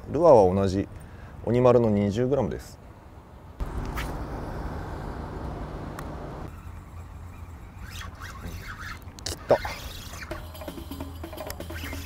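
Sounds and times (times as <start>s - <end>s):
low outdoor rumble: 3.6s - 6.6s.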